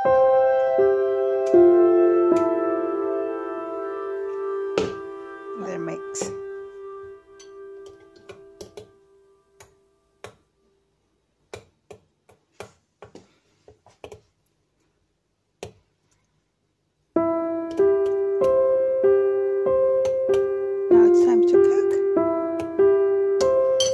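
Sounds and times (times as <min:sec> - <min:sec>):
piano music: 0:00.0 - 0:10.2, 0:17.2 - 0:23.9.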